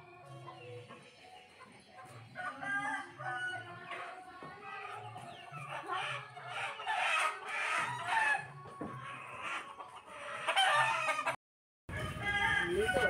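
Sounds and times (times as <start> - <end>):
chickens clucking: 0.0 - 13.0
rooster crowing: 10.6 - 13.0.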